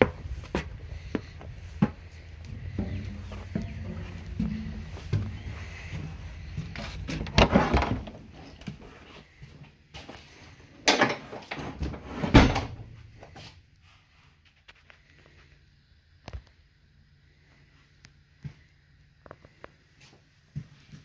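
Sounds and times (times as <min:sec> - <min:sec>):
door and latch clunking: 0:07.0 - 0:08.4.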